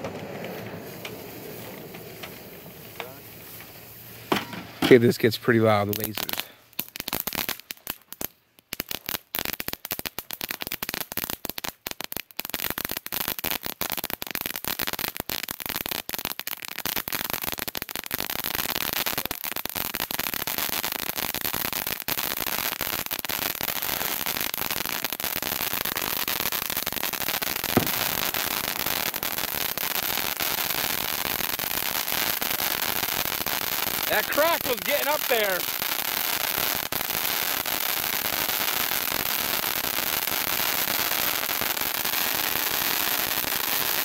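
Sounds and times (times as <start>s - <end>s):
fountain firework hissing crackle: 0.0s - 4.4s, 5.0s - 44.0s
firework pop: 27.7s - 30.2s.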